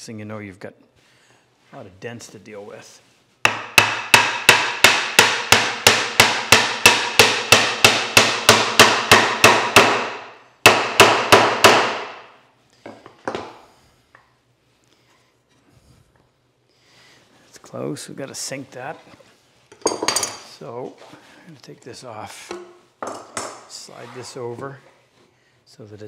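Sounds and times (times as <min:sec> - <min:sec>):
hammer pounding on wood: 0:03.4 - 0:12.3.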